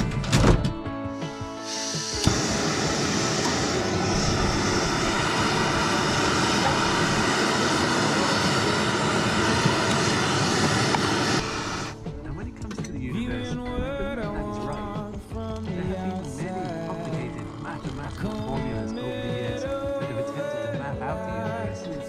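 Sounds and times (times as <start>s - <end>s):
gas stove roaring hiss: 1.2s - 12.0s.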